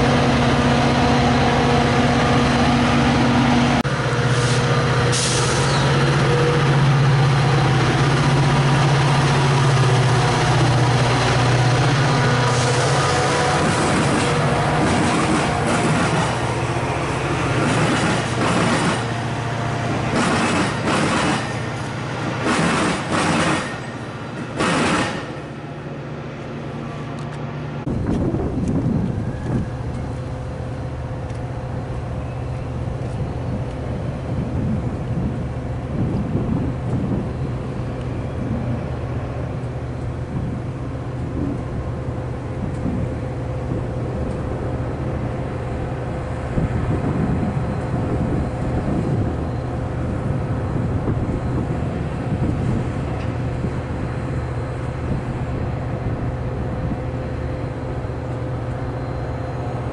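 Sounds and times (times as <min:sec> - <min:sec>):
wind gusts on microphone: 0:27.8 - 0:30.3, 0:32.9 - 0:57.6.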